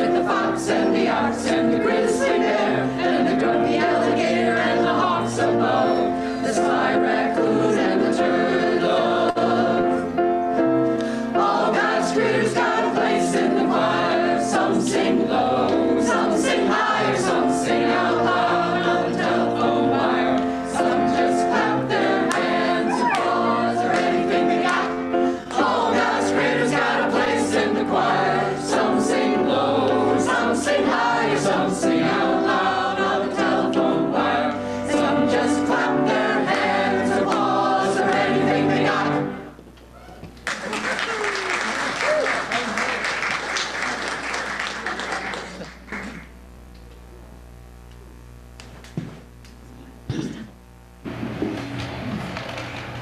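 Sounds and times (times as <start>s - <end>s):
mixed choir singing: 0.0s - 10.4s, 11.1s - 39.6s.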